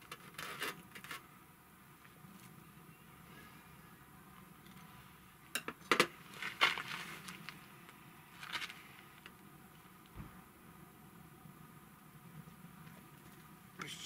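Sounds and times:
food rustling: 6.1 - 9.4.

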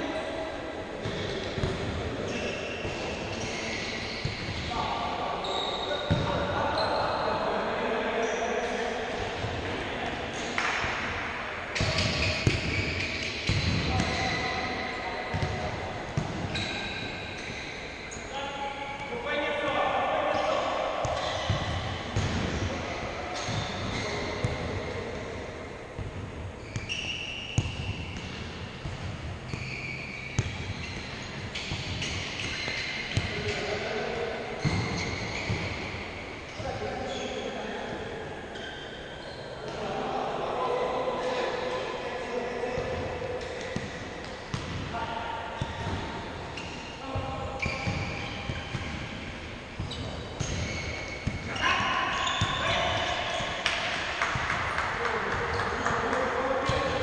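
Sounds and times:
din of indoor hall: 0.0 - 57.0
shoe squeaks on court: 1.0 - 4.8, 5.4 - 7.3, 11.8 - 15.6, 16.2 - 19.1, 21.1 - 21.8, 23.3 - 24.6, 26.6 - 34.0, 34.6 - 39.8, 45.6 - 53.9
ball kicks echoing: 6.1 - 6.5, 15.3 - 16.6, 20.3 - 22.7.

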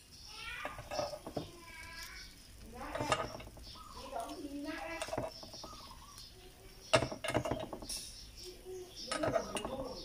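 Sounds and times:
metal utensil clinking on a pan: 2.8 - 3.6, 9.1 - 10.0.

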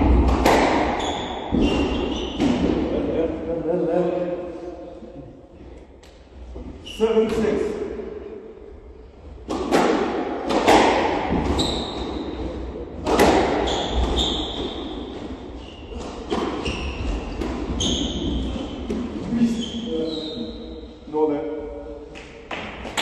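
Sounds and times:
squash ball hitting rackets and walls: 0.0 - 3.1, 9.3 - 19.4, 22.2 - 23.0
shoes squeaking on wooden floor: 11.4 - 12.4, 13.6 - 20.5.

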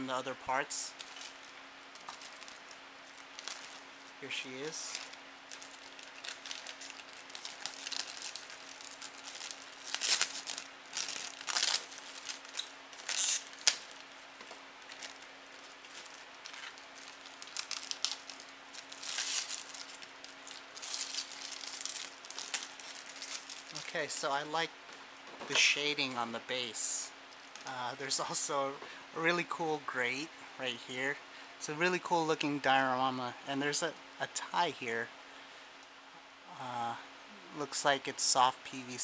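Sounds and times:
plastic bag crinkling: 0.9 - 24.6.

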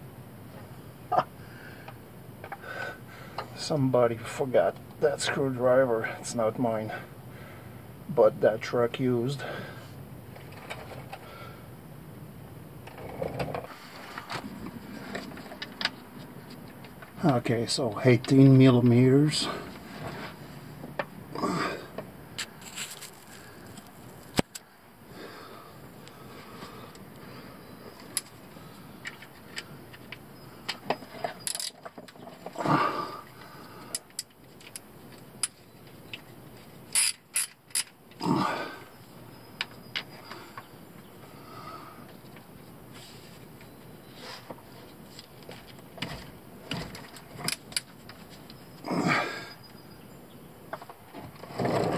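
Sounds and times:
soft shuffling: 22.4 - 24.4, 42.6 - 43.6.

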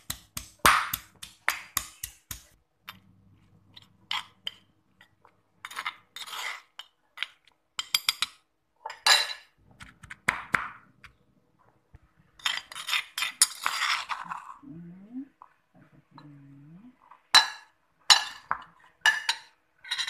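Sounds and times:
pestle pounding wet paste: 0.0 - 2.6
metal spoon scraping stone mortar: 3.7 - 8.3, 12.4 - 14.6, 18.1 - 20.0.

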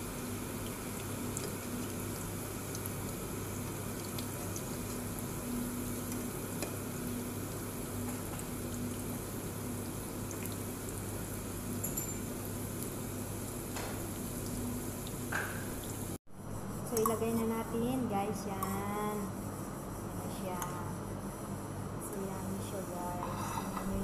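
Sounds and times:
food sizzling in hot oil: 0.0 - 16.2.

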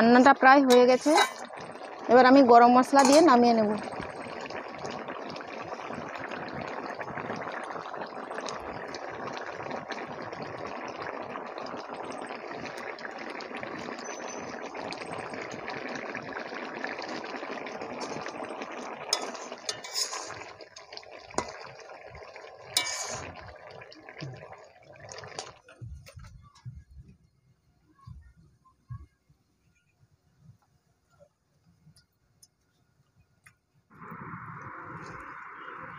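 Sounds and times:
curry bubbling in pan: 0.0 - 26.6, 33.9 - 35.9
steel utensils clinking: 0.7 - 1.6, 3.0 - 3.4, 19.2 - 20.4, 22.8 - 23.2.

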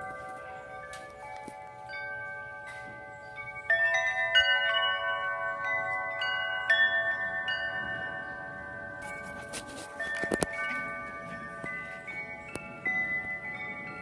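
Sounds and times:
tubular wind chimes ringing: 0.0 - 14.0.

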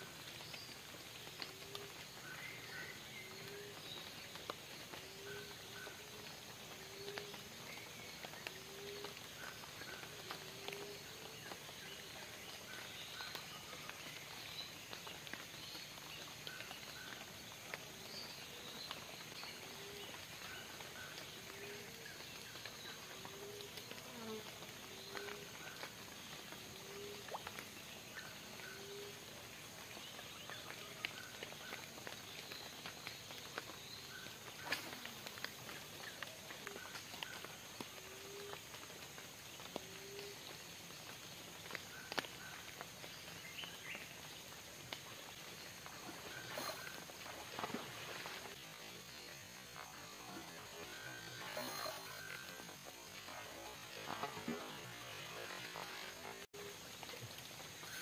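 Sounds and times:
high insect hiss: 0.0 - 58.0
faint ticks: 3.4 - 48.6.

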